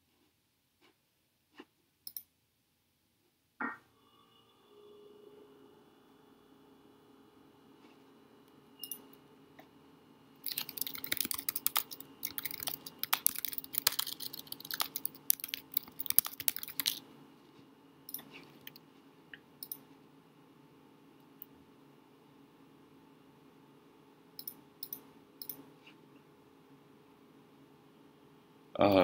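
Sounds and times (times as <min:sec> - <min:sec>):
fast keyboard typing: 0:10.4 - 0:17.0.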